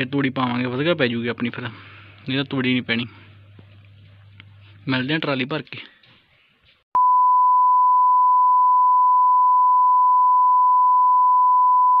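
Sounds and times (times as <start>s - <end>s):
steady high test tone beep: 7.0s - 12.0s.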